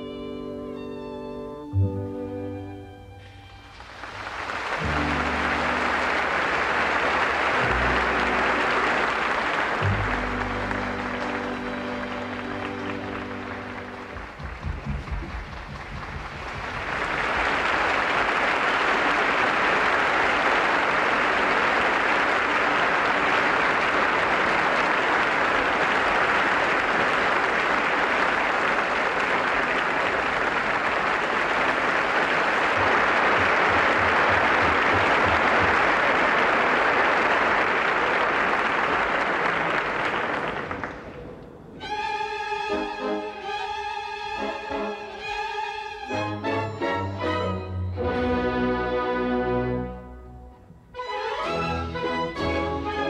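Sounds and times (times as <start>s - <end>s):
audience applauding: 3.2s - 41.7s.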